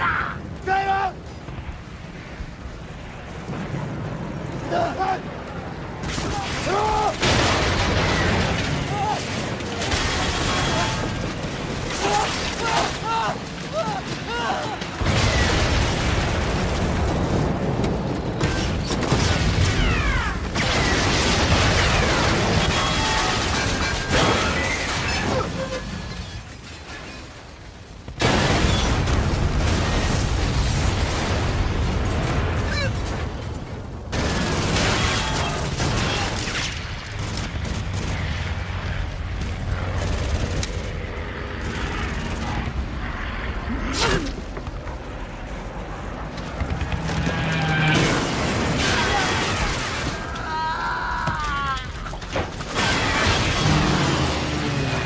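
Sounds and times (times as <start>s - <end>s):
explosion blasts: 1.3s - 25.9s, 28.0s - 40.3s
rapid gunfire: 34.1s - 42.8s.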